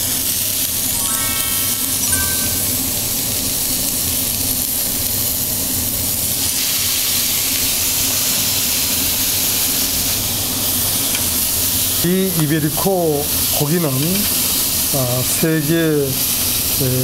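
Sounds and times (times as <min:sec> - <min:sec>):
meat sizzling on a griddle: 0:05.8 - 0:17.0.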